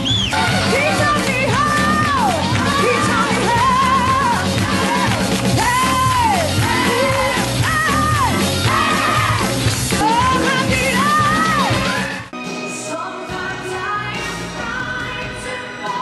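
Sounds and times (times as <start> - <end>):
band with drums: 0.0 - 12.6.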